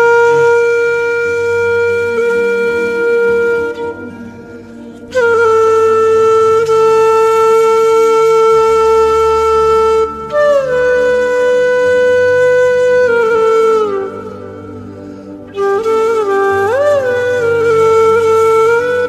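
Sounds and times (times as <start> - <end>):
flute playing long notes: 0.0 - 19.0
low drone: 0.0 - 19.0.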